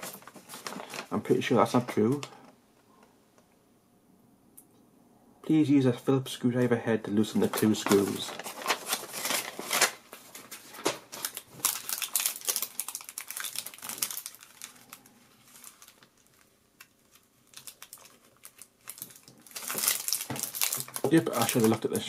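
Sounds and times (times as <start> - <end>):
paper rustling: 0.0 - 1.1, 7.4 - 16.4
plastic film crinkling: 0.0 - 2.4, 7.2 - 22.0.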